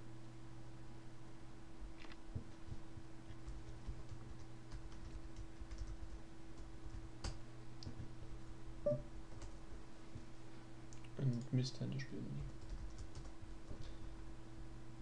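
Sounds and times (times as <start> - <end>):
low electrical hum: 0.0 - 15.0
faint clicking at computer desk: 2.0 - 8.1, 10.9 - 11.6, 12.4 - 14.0.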